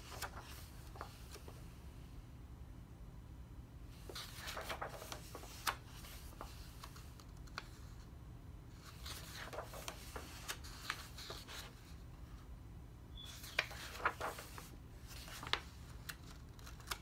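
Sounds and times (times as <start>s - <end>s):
paper pages rustling: 0.0s - 1.6s, 4.0s - 8.0s, 8.8s - 12.0s, 13.2s - 17.0s
paper snapping: 15.4s - 17.0s.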